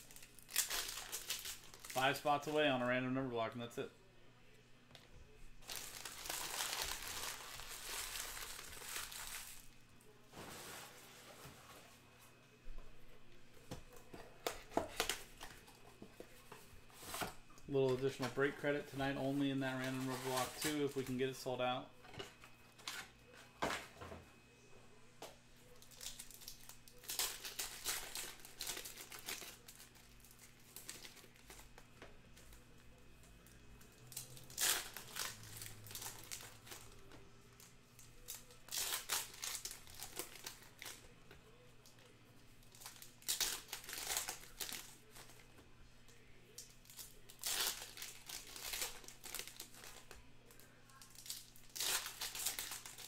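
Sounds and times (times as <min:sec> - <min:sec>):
foil wrappers crinkling and tearing: 0:00.0 - 0:02.7, 0:05.6 - 0:09.8, 0:14.4 - 0:21.4, 0:25.6 - 0:32.6, 0:33.4 - 0:45.5, 0:46.1 - 0:53.0.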